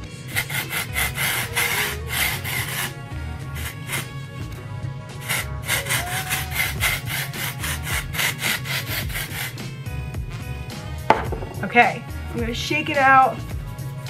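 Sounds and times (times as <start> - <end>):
aerosol spray hissing bursts: 0.3 - 2.9, 3.5 - 4.2, 5.2 - 9.6.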